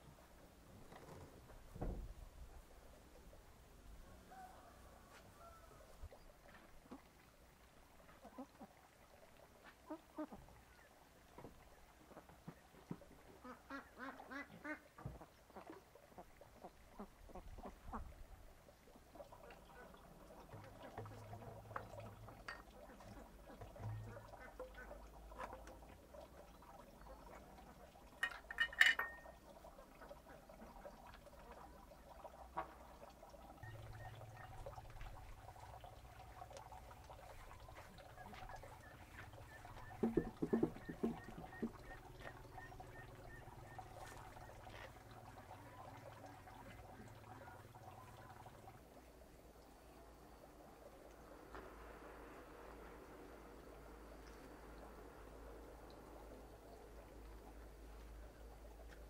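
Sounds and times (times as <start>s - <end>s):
farmyard bird calls: 23.0s - 25.4s, 33.6s - 35.9s, 37.0s - 45.7s.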